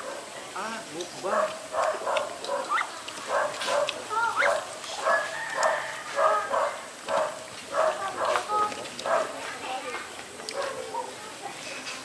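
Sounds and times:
dog barking: 0.0 - 0.3, 1.2 - 9.4, 10.5 - 11.2.

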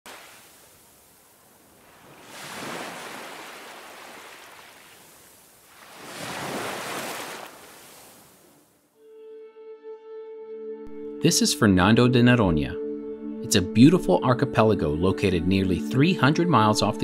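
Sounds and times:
ocean waves breaking on beach: 0.1 - 8.8.

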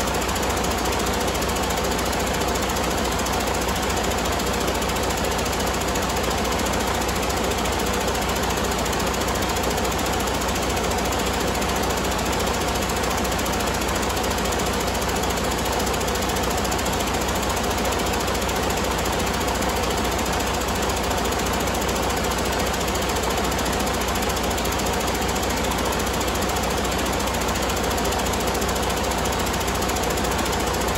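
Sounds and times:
diesel engine idling: 0.0 - 30.9.

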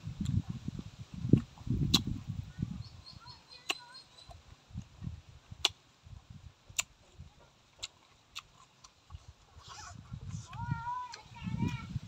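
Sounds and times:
chewing food: 1.3 - 2.1, 3.4 - 11.8
wet mouth clicks: 1.3 - 2.2, 5.6 - 5.8, 6.7 - 9.9.

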